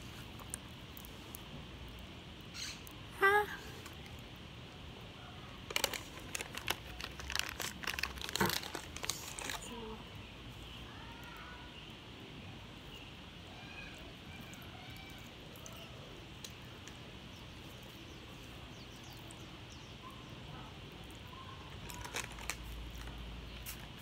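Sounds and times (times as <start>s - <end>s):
faint bird chirps: 2.5s - 3.7s, 9.7s - 21.7s
plastic wrapper crackling: 5.6s - 10.0s, 21.7s - 23.8s.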